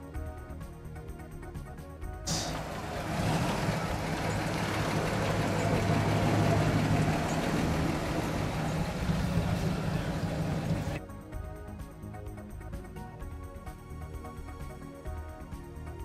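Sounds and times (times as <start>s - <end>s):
pickup truck driving past: 2.3s - 11.0s.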